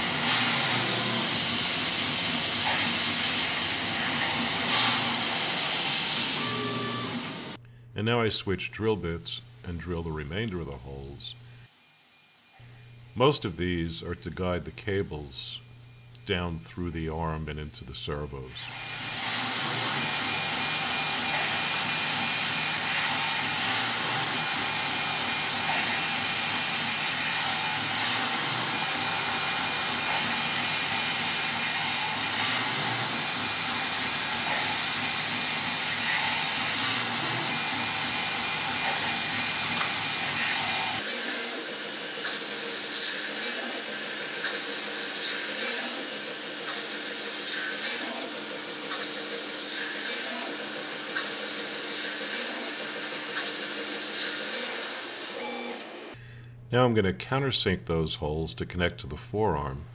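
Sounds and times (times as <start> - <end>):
hiss of coolant spray: 0.0 - 6.4, 19.1 - 55.6
mill drilling metal: 0.0 - 7.6, 18.6 - 56.2.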